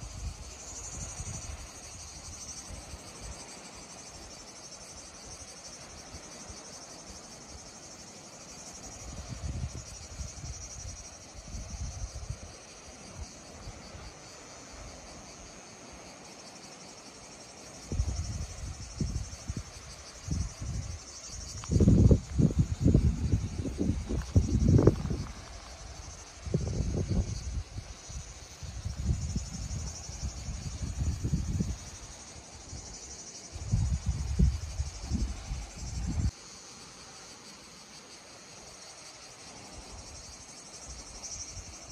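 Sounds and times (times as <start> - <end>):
insects chirring: 0.0 - 41.9
wind buffeting microphone: 9.0 - 12.6, 17.8 - 36.3.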